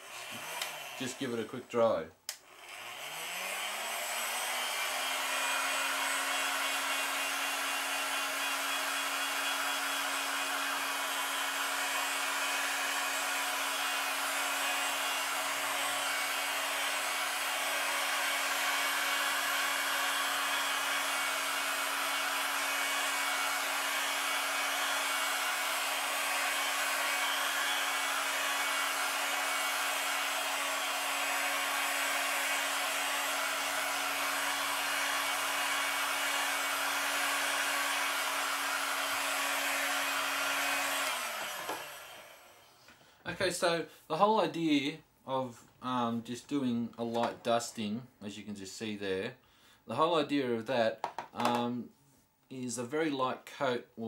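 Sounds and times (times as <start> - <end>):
heat gun fan humming: 0.0 - 1.4, 2.3 - 42.6.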